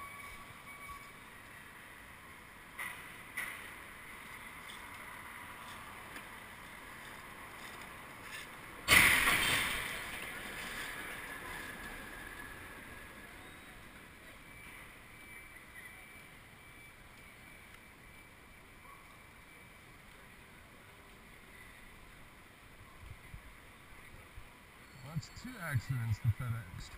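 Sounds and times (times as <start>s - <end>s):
street traffic: 0.0s - 26.9s
truck impact with scraping: 8.8s - 10.9s.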